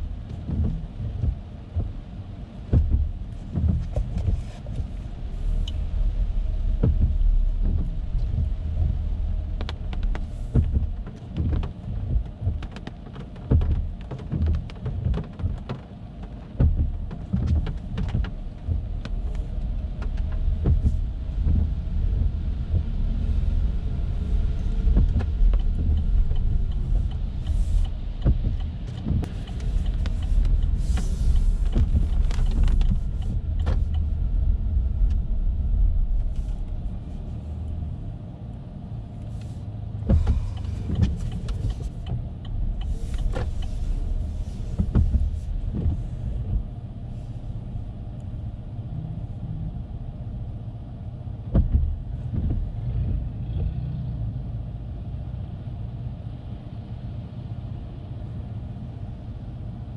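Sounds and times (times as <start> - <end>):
tyre and road rumble: 0.0 - 56.8.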